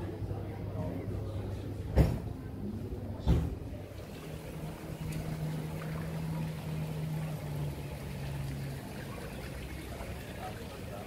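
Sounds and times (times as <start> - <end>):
outdoor street hiss: 3.9 - 11.0.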